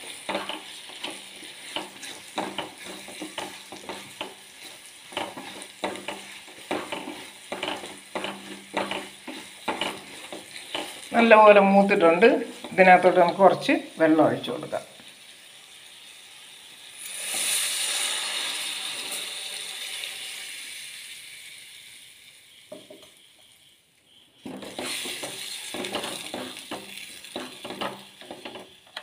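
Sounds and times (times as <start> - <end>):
spatula scraping steel pot: 0.0 - 13.5, 24.4 - 29.0
water sizzling in hot oil: 0.0 - 29.0.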